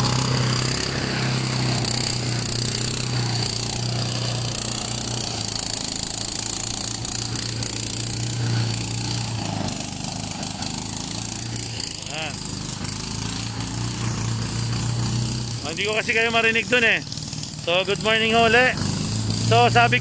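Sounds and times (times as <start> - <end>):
engine-driven shredder running: 0.0 - 20.0.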